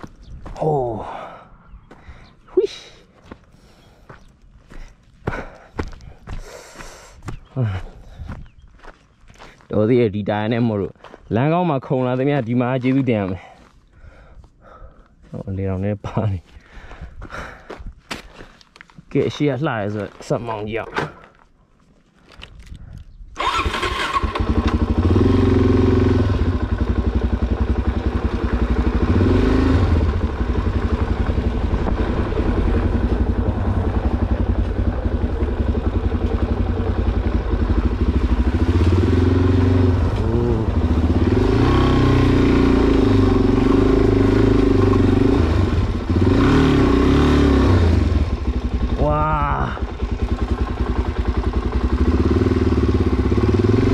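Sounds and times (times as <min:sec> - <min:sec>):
motorcycle engine revving: 0:23.4 - 0:53.9.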